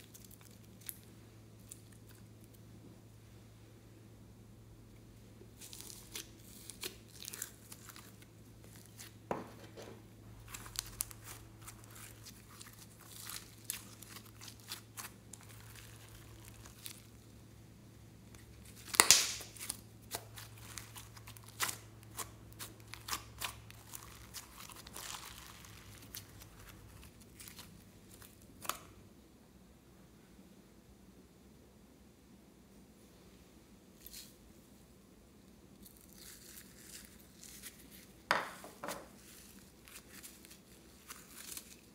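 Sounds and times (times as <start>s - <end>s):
slime wet crackles and clicks: 18.8s - 26.3s.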